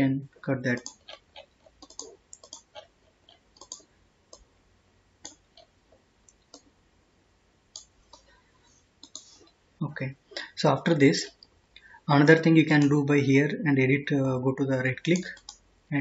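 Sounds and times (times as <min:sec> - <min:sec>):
computer mouse clicking: 0:00.7 - 0:04.5, 0:05.2 - 0:05.7, 0:06.3 - 0:06.7, 0:07.7 - 0:08.4, 0:09.0 - 0:09.6, 0:15.1 - 0:15.6.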